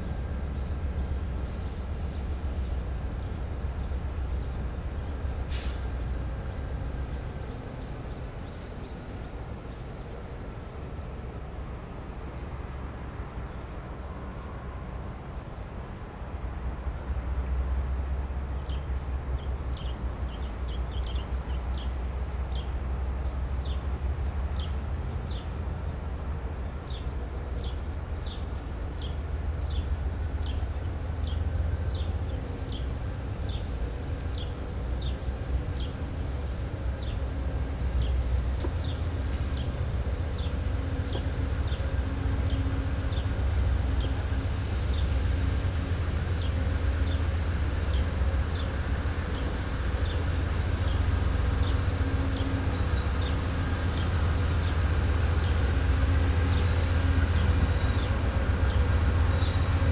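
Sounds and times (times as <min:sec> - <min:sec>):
diesel locomotive rumbling: 0:00.0 - 0:59.9
bird chirping: 0:18.6 - 0:36.0.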